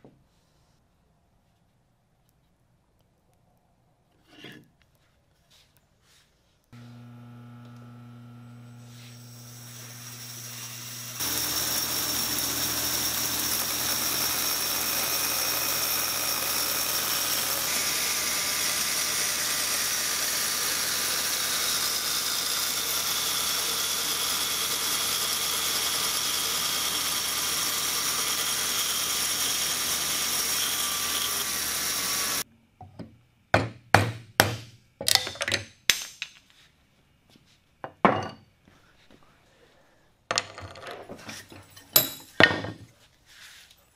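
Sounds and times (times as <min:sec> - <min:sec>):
bandsaw cutting wood: 0:06.8 - 0:32.4.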